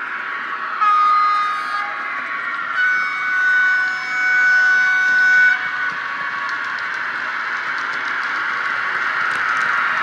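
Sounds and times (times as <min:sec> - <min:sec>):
model train running noise: 0:00.0 - 0:10.0
model locomotive horn: 0:00.8 - 0:02.0, 0:02.7 - 0:05.7.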